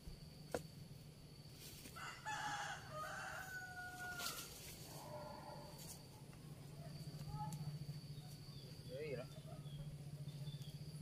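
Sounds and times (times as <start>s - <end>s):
faint rooster crowing: 1.9s - 5.8s.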